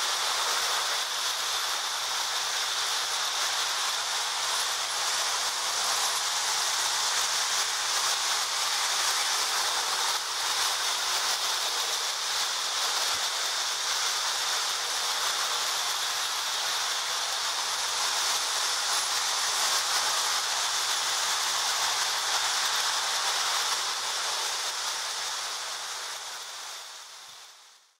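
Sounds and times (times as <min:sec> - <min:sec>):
toy trains rolling on metal track: 0:00.0 - 0:28.0.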